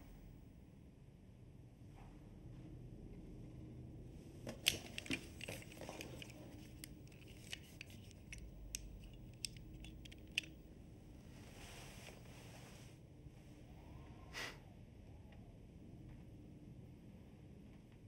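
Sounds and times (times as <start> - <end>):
hands clicking on object: 4.5 - 10.6.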